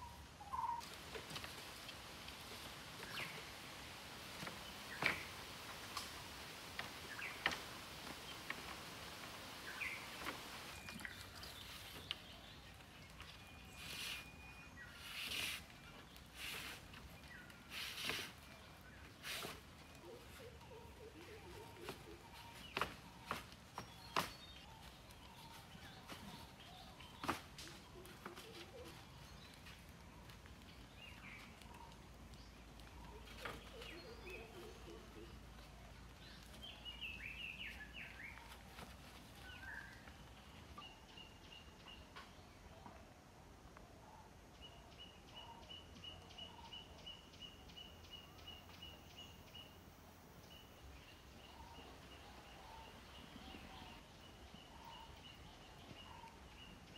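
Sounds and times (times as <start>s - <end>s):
faint bird chirps: 9.7s - 35.8s.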